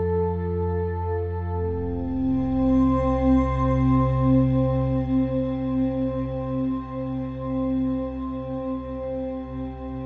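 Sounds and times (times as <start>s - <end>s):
ambient music with pulsing tones: 0.0s - 10.0s.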